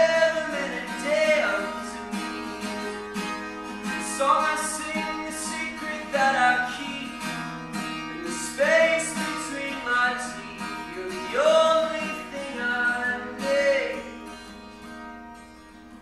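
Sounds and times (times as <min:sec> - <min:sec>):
man singing: 0:00.0 - 0:02.1, 0:03.9 - 0:14.2
acoustic guitar strumming: 0:00.0 - 0:16.0.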